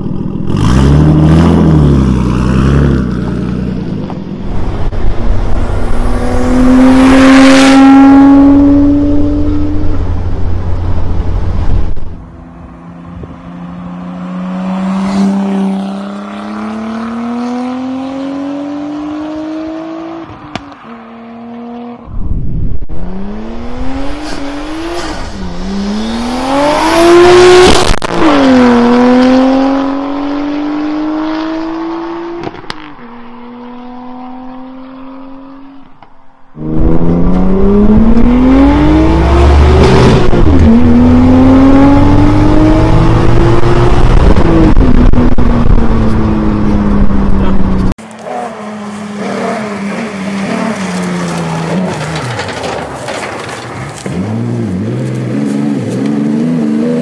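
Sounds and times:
car engine revving hard: 0.4 - 3.6, 23.0 - 32.6, 36.6 - 48.4.

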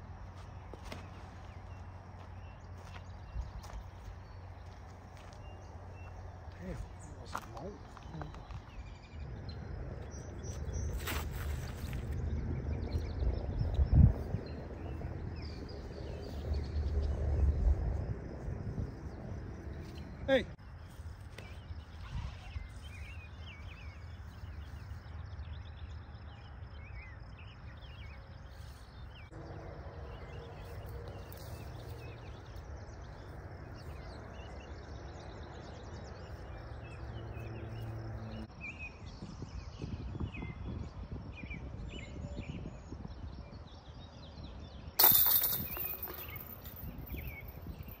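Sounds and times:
birds chirping: 0.0 - 17.6, 44.8 - 48.0
disc hitting metal chains: 45.0 - 48.0.

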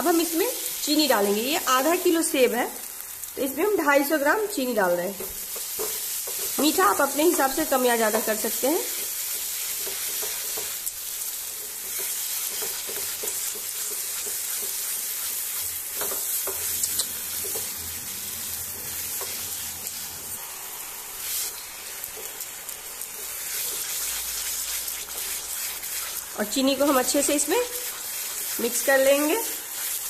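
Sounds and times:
food sizzling in pan: 0.0 - 30.0
spatula scraping pan: 5.2 - 20.0, 23.0 - 30.0.

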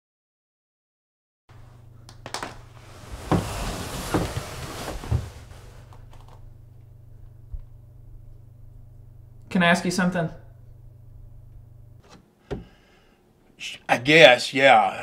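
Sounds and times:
steady low hum: 1.5 - 13.7
rustling: 2.3 - 6.5.

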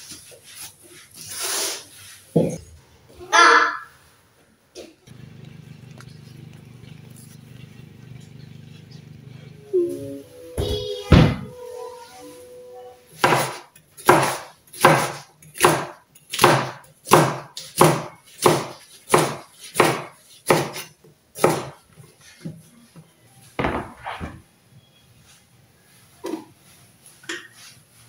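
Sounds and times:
knife chopping on wooden board: 13.2 - 21.8.

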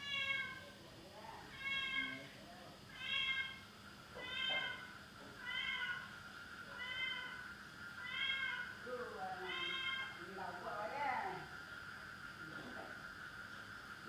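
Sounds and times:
cat meowing: 0.0 - 0.6, 1.5 - 2.3, 2.9 - 3.6, 4.2 - 6.1, 6.7 - 7.4, 8.0 - 8.7, 9.4 - 10.2.

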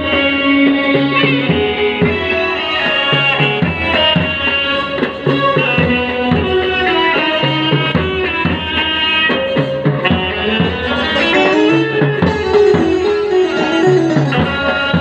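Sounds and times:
band playing a melody: 0.0 - 15.0
bass drums beating: 9.6 - 15.0.

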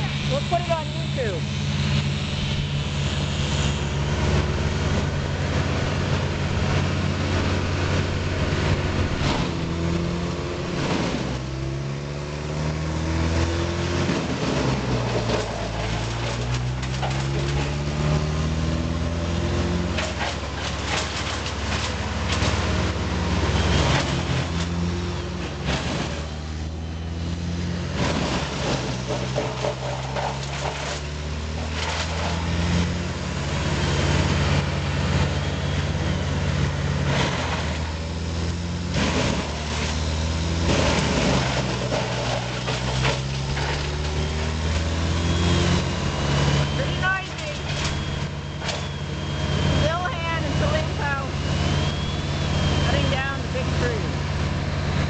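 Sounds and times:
wood chipper engine running: 0.0 - 55.0
wood cracking: 13.2 - 23.0, 27.8 - 34.3, 37.0 - 52.0.

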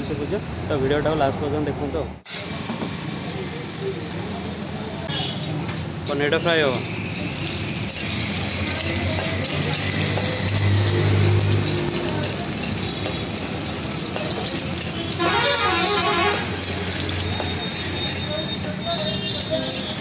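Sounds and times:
voices: 0.0 - 20.0
food sizzling in hot oil: 5.1 - 20.0.

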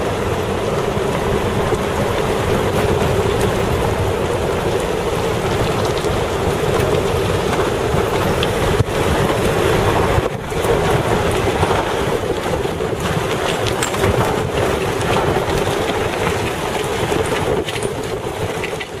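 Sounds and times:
vehicle engine drone: 0.0 - 19.0
wind buffeting microphone: 0.0 - 19.0.

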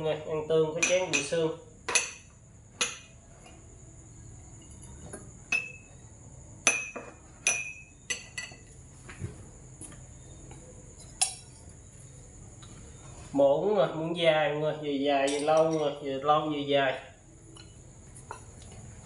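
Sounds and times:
insect chirring: 0.0 - 19.0
glass and ceramic tableware clinking: 0.8 - 1.3, 1.9 - 3.2, 5.5 - 5.9, 6.6 - 8.8, 11.0 - 11.6, 15.2 - 16.0.

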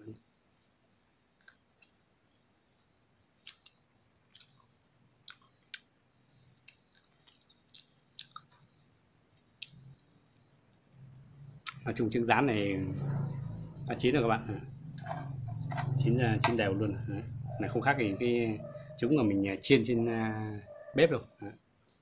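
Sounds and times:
person chewing: 3.4 - 5.9, 6.6 - 8.7.

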